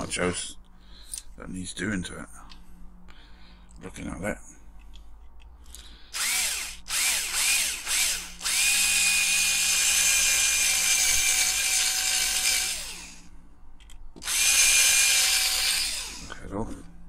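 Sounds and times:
electric drill drilling rivet: 0:06.1 - 0:13.3, 0:14.2 - 0:16.4.

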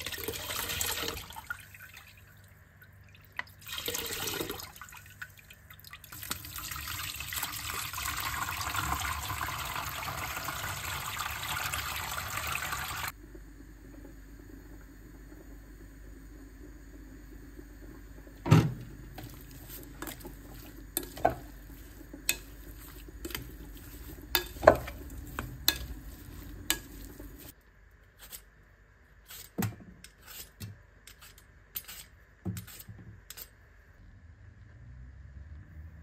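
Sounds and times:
spatula clacking on glass bowl: 0:24.3 - 0:27.2
vegetable peeler scraping: 0:28.2 - 0:28.5, 0:29.2 - 0:33.5.

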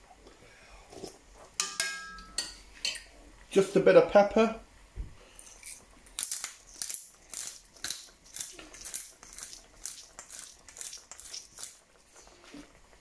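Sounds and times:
pepper mill grinding: 0:05.4 - 0:12.2.

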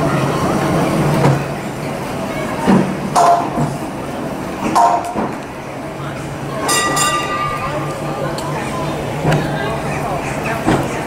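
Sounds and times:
electric tram humming on rails: 0:00.0 - 0:11.0
tram clattering knocks: 0:02.5 - 0:05.5, 0:06.2 - 0:11.0.

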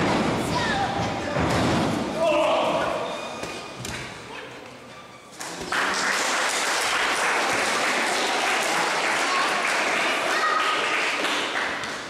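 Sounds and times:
crowd applauding and cheering: 0:05.4 - 0:12.0.

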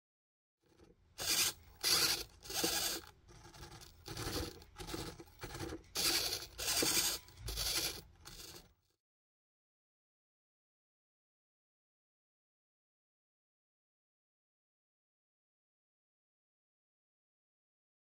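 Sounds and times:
servos whirring in raspy bursts: 0:01.2 - 0:08.6.

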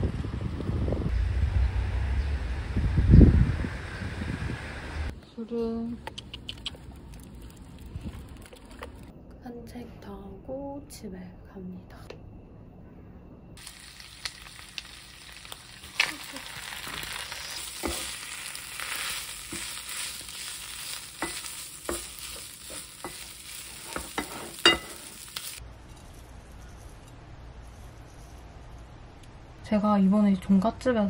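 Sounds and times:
food sizzling in a frying pan: 0:13.6 - 0:25.6
wooden spatula scraping pan: 0:17.2 - 0:25.6.

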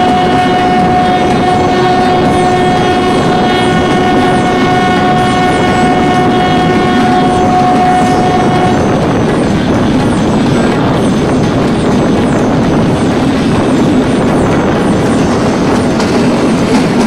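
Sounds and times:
train horn blast: 0:00.0 - 0:09.0
train coaches rumbling and clattering: 0:00.0 - 0:17.0.

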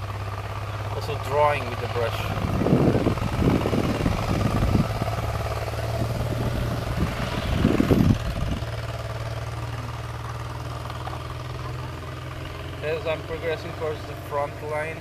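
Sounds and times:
distant engine hum: 0:00.0 - 0:15.0
wind buffeting microphone: 0:02.2 - 0:08.9.

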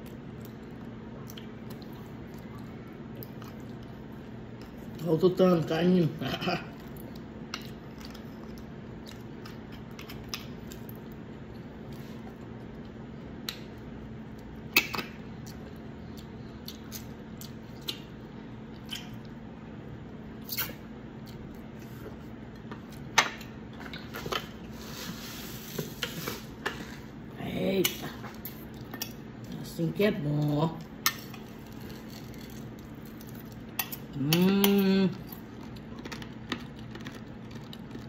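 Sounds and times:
faint steady hum: 0:00.0 - 0:38.0
wet chewing and lip smacks: 0:15.4 - 0:19.4.

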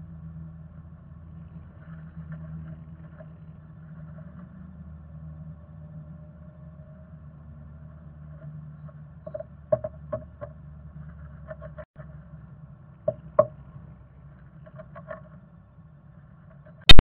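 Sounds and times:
bird scratching and tapping in nest box: 0:08.9 - 0:11.9, 0:14.6 - 0:15.4.

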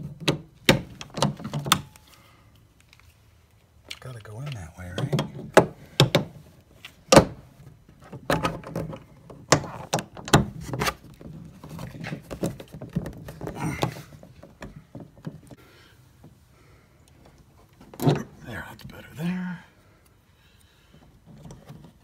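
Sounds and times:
plastic rubbing and rustling: 0:10.5 - 0:15.6.

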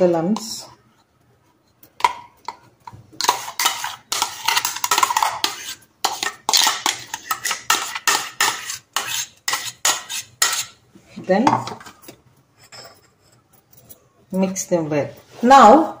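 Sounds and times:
spoon scraping metal jar: 0:03.2 - 0:10.8.

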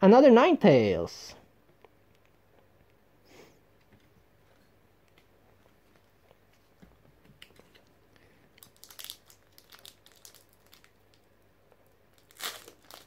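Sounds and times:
foil wrapper crinkling: 0:08.6 - 0:13.0.

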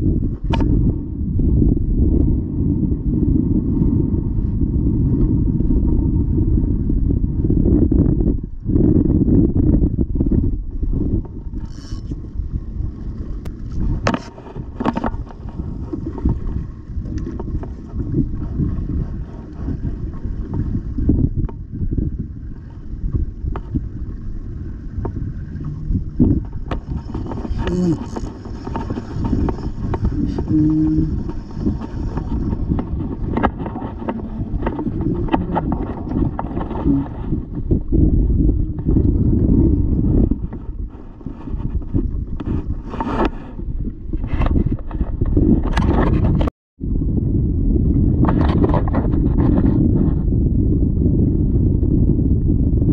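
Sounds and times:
wind on microphone: 0:00.0 - 0:52.9
water sloshing against kayak: 0:10.0 - 0:46.5.

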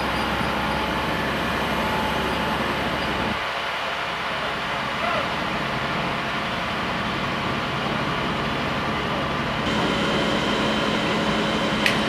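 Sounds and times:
vehicle engines and pumps droning: 0:00.0 - 0:12.0
faint high whine: 0:09.6 - 0:12.0.

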